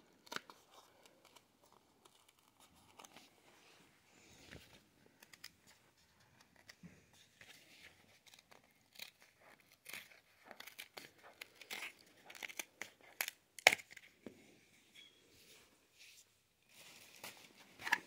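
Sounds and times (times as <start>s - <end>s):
packaging crinkling and ripping: 7.9s - 14.2s.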